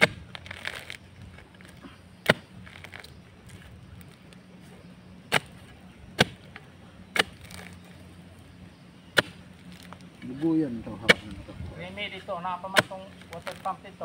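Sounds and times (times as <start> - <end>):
digging tool striking ground: 0.0 - 3.7, 5.3 - 7.8, 9.1 - 11.4, 12.6 - 13.8.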